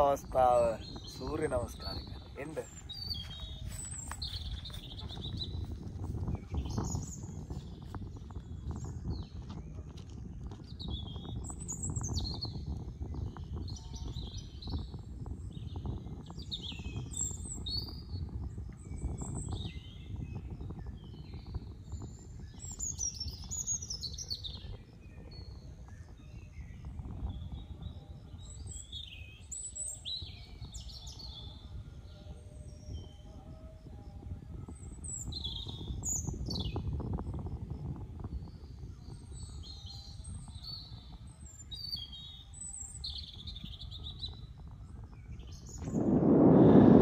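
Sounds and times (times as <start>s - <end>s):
small birds chirping: 0.0s - 31.5s
steady low rumble: 45.1s - 47.0s.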